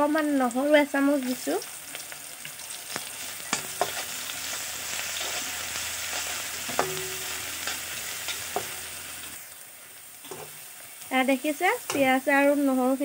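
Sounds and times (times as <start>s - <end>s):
onions sizzling in oil: 0.0s - 13.0s
spoon knocking against pan: 6.7s - 7.8s.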